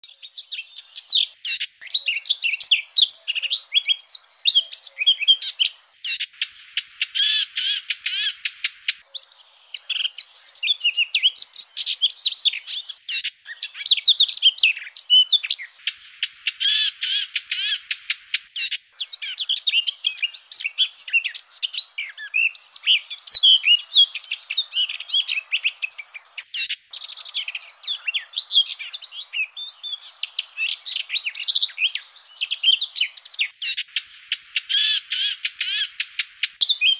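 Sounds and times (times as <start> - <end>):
bird warbling and trilling: 0.0 - 36.9.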